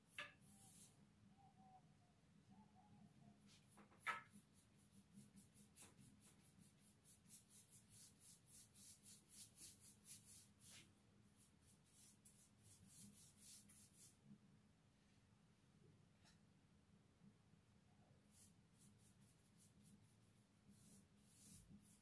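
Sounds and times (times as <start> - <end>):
paintbrush brushing on wall: 0.1 - 1.0, 3.5 - 14.2, 18.3 - 22.0.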